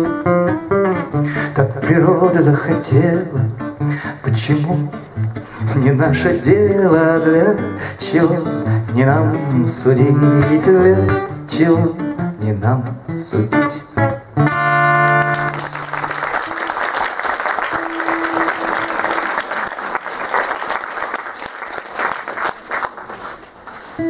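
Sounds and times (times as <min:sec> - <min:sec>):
audience applause: 0:15.2 - 0:23.4
acoustic guitar chord: 0:17.7 - 0:19.4.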